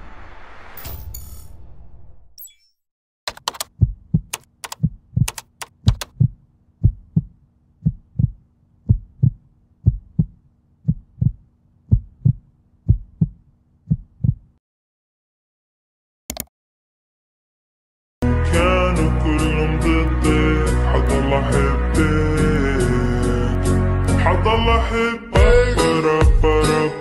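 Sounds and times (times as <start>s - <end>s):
sharp clicks: 3.3s - 6.2s, 16.3s - 16.5s
heartbeat thumps: 3.7s - 14.6s.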